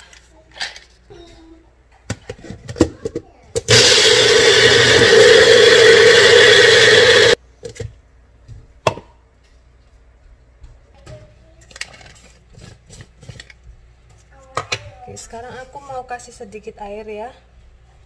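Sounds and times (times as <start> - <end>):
blender motor running: 3.7 - 7.4.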